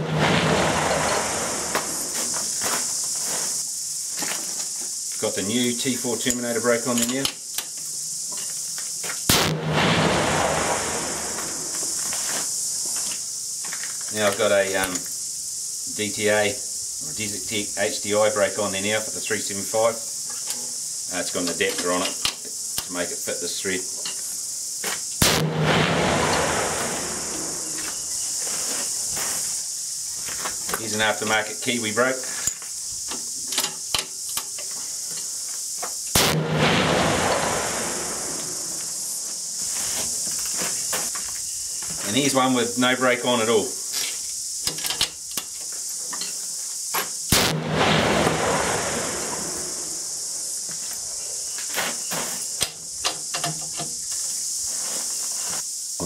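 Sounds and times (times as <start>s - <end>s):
rifle shot echo: 0.0s - 2.1s, 9.3s - 12.0s, 25.2s - 27.8s, 36.2s - 39.0s, 47.3s - 50.3s
insects chirring: 0.0s - 56.0s
sharp clicks and knocks: 32.5s - 36.0s, 44.0s - 46.4s, 52.6s - 54.0s.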